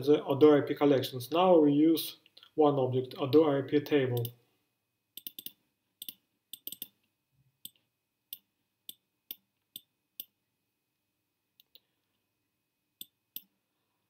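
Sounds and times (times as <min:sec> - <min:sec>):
computer mouse clicks: 0:05.2 - 0:07.0.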